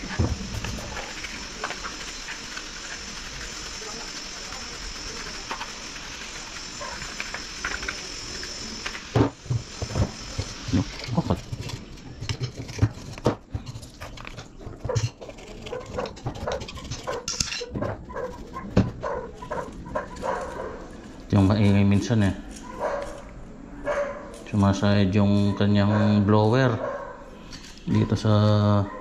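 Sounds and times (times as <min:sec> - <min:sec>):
paintbrush scrubbing dust: 0:00.0 - 0:22.2
metal tool scraping: 0:00.0 - 0:23.3.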